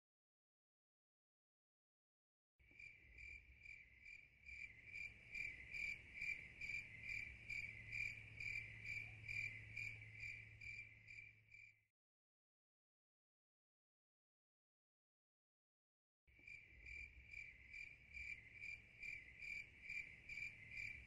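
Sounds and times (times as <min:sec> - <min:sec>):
insect chirping trill: 0:02.8 - 0:11.7, 0:16.4 - 0:21.0.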